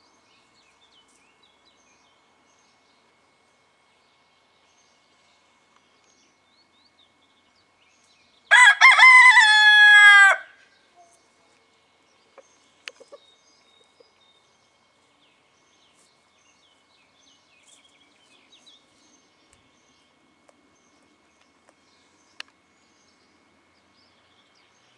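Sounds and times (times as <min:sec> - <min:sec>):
cockerel crowing: 0:08.5 - 0:10.6.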